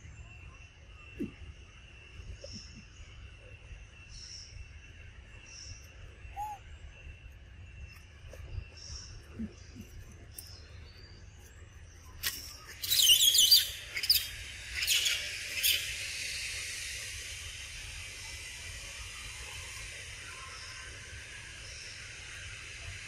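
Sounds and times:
steady high hiss: 0.0s - 23.0s
high wavering bird chirps: 5.5s - 11.4s, 12.2s - 16.3s.

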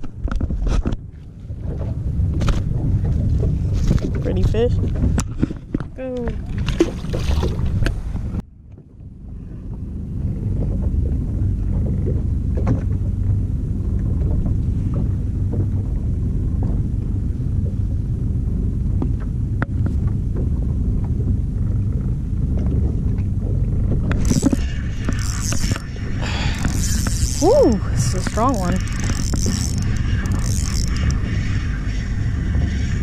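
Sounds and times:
boat engine rumble: 0.0s - 33.0s
fishing reel rattling: 24.1s - 31.6s.

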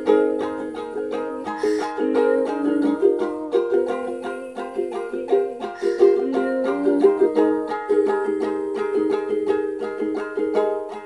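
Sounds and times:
ukulele playing: 0.0s - 11.0s.

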